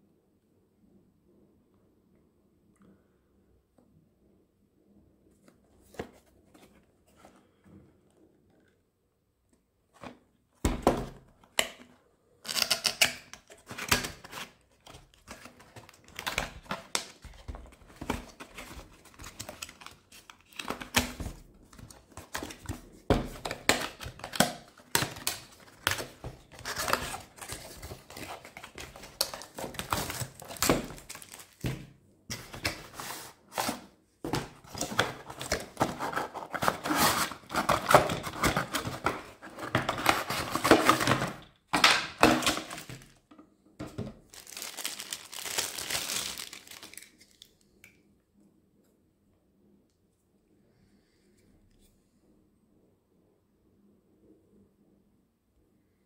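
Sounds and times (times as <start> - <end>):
cardboard box scraping and rustling: 32.3 - 41.2.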